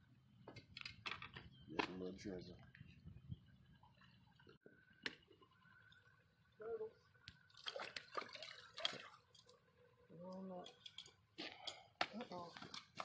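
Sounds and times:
fish splashing in water: 0:07.4 - 0:09.4.

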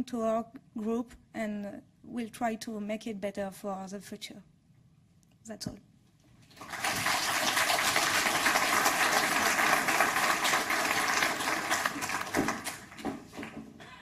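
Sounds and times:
audience applauding: 0:06.5 - 0:13.7.

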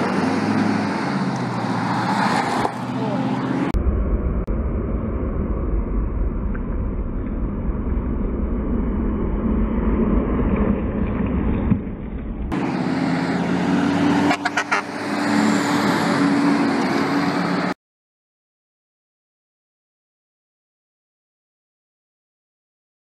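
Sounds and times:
highway traffic passing: 0:00.0 - 0:17.8.

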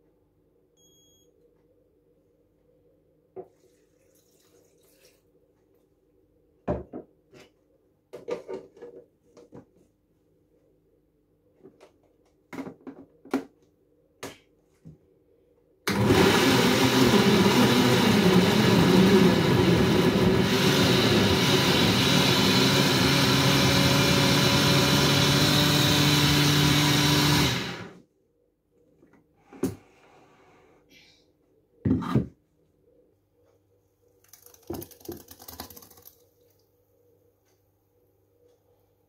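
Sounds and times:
blender running: 0:15.9 - 0:28.0.

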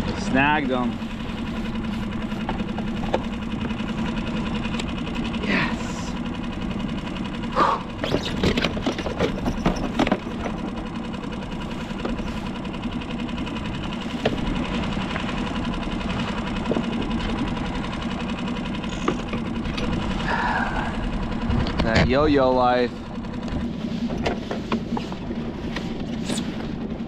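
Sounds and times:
fishing reel gears whirring: 0:00.2 - 0:21.5.

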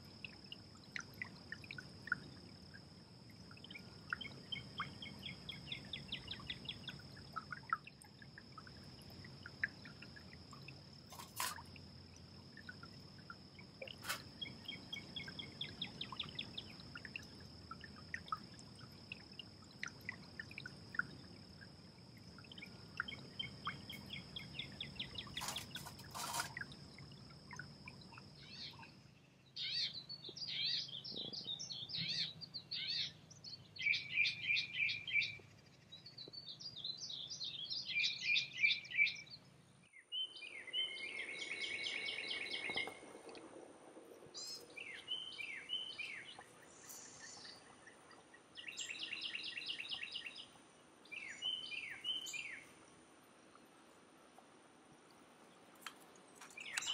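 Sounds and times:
songbirds singing and chirping: 0:00.0 - 0:43.4, 0:44.2 - 0:52.8, 0:55.4 - 0:56.9.

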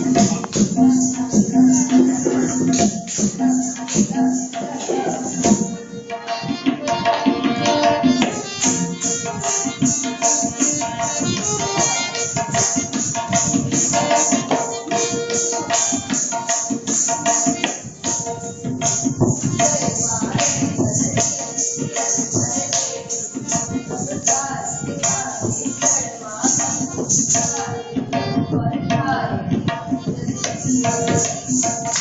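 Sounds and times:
held melodic line: 0:00.0 - 0:16.2
tabla playing: 0:00.0 - 0:32.0
ankle bells jingling: 0:08.1 - 0:27.7.

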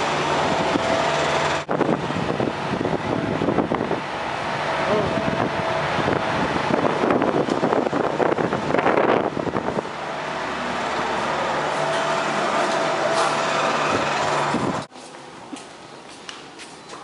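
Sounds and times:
wind rumbling on microphone: 0:00.4 - 0:10.9, 0:13.8 - 0:14.9.

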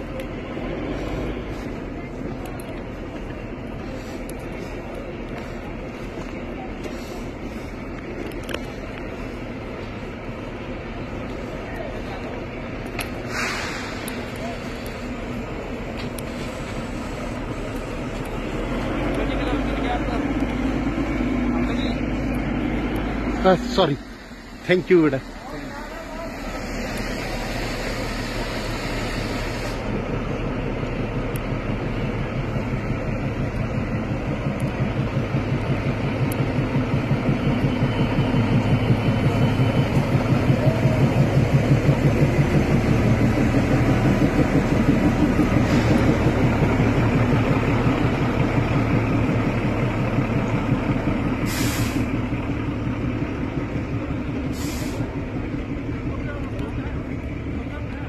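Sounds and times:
diesel locomotive engine rumble: 0:00.0 - 0:58.0
train coaches rolling past: 0:00.0 - 0:58.0
short hisses: 0:13.2 - 0:14.8, 0:26.4 - 0:30.0, 0:51.4 - 0:52.2, 0:54.5 - 0:55.1.

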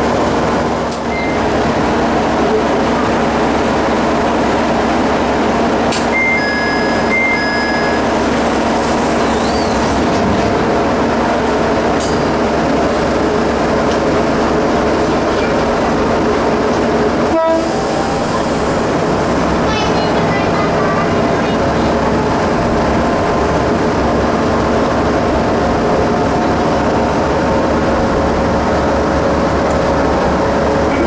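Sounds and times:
diesel railcar engine running: 0:00.0 - 0:31.0
high two-note signal tone: 0:06.2 - 0:08.1.

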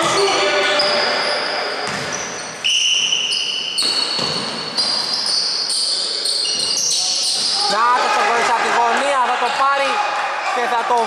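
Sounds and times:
sneakers squeaking on hardwood: 0:00.0 - 0:07.8
basketball bouncing: 0:01.8 - 0:02.3, 0:03.8 - 0:05.1.

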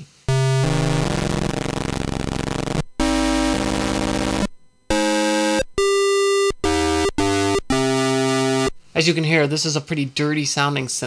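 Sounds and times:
buzzy chiptune synthesizer chords: 0:00.3 - 0:08.8.

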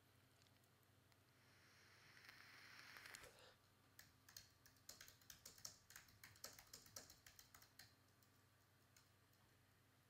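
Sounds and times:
faint keyboard typing: 0:02.2 - 0:09.6.

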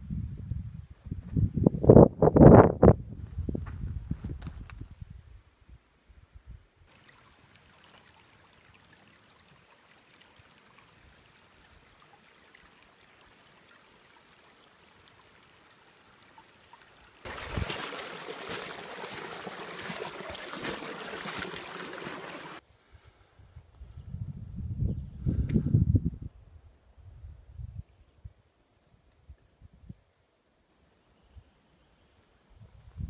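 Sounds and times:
creek trickling over stones: 0:06.9 - 0:22.6.

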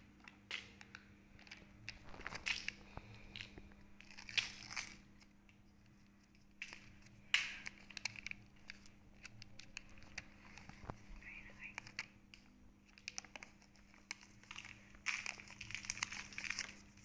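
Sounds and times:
plastic clicks and rustles: 0:00.1 - 0:17.0
foil crinkling: 0:01.4 - 0:05.3, 0:06.1 - 0:11.0, 0:12.8 - 0:17.0.

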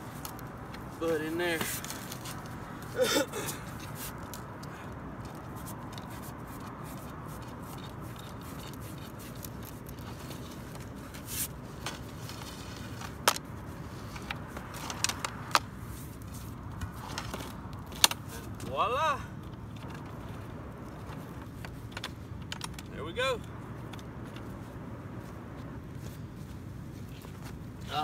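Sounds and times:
steady background hiss: 0:00.0 - 0:28.0
metallic clicks and scrapes: 0:03.6 - 0:18.6.

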